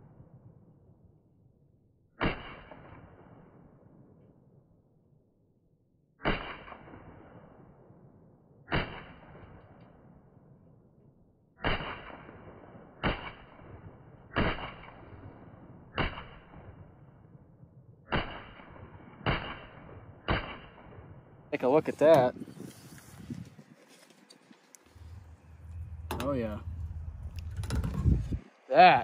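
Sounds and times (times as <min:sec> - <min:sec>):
rifle shots with echo: 0:02.2 - 0:04.2, 0:06.2 - 0:10.2, 0:11.6 - 0:17.4, 0:18.0 - 0:21.5.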